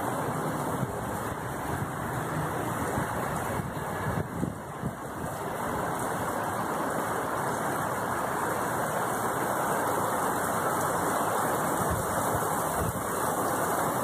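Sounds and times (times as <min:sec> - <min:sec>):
rain falling steadily: 0:00.0 - 0:14.0.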